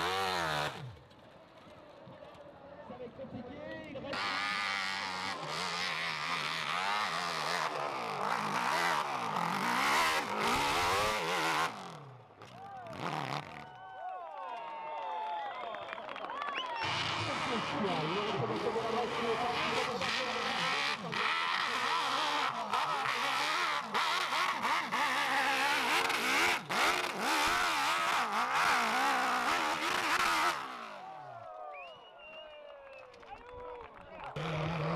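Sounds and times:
dirt bike engine revving: 0:00.0 - 0:01.1, 0:04.1 - 0:13.6, 0:16.8 - 0:31.2, 0:34.3 - 0:34.9.

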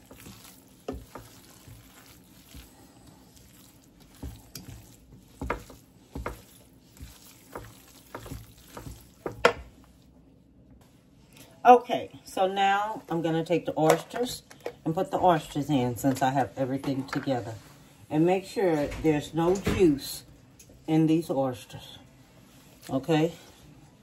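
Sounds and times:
thick mixture squelching: 0:00.0 - 0:11.6
spoon knocking and scraping bowl: 0:04.1 - 0:09.8.

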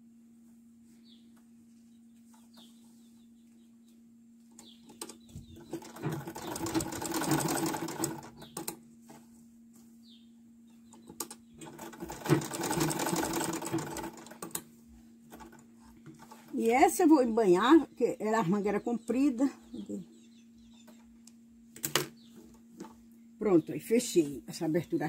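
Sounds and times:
sewing machine stitching: 0:05.6 - 0:08.7, 0:11.6 - 0:14.6.

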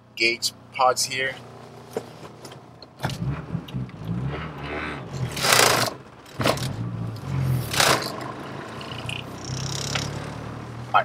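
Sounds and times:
car engine accelerating: 0:01.4 - 0:11.0.

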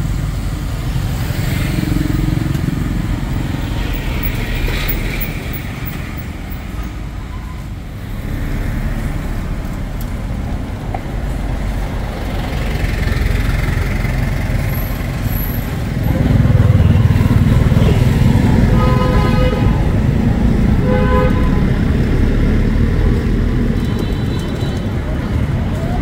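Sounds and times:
street traffic rumble: 0:00.0 - 0:26.0
vehicle horns: 0:16.0 - 0:22.1, 0:23.8 - 0:25.1.

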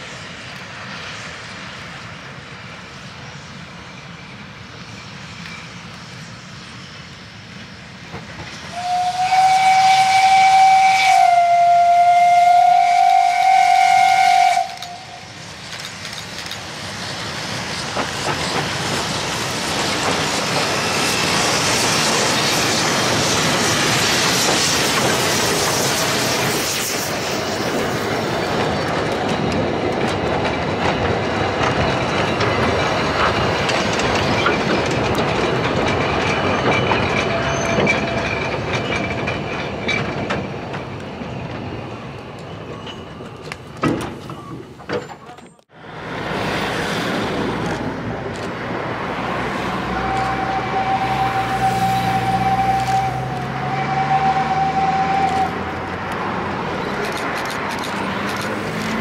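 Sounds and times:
train rumble and wheel clatter: 0:00.0 - 0:59.0
steam locomotive whistle: 0:08.7 - 0:15.4, 0:49.5 - 0:55.9.

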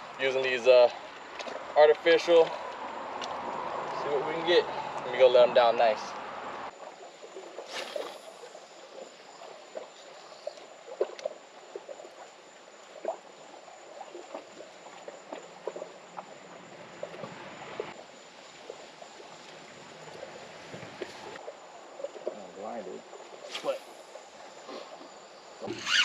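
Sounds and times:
water lapping against rocks: 0:06.2 - 0:25.9.

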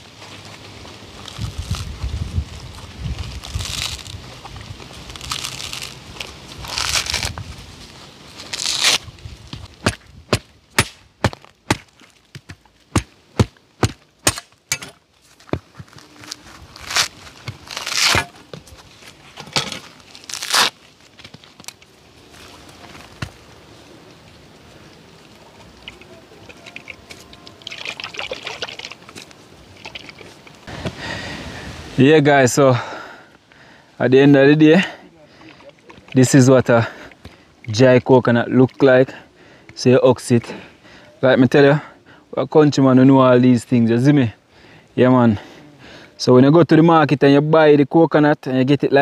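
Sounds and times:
coconut husk rustling and tearing: 0:00.0 - 0:32.2
sharp cracking strikes: 0:09.8 - 0:15.0
liquid pouring and trickling: 0:25.8 - 0:30.3.

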